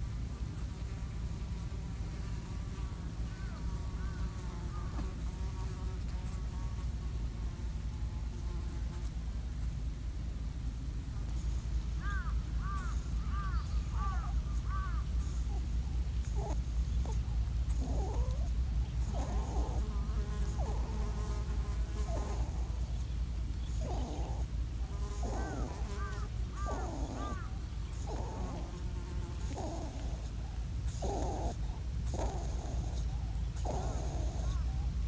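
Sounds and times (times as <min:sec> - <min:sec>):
rabbit crying out: 0:25.1 - 0:28.7.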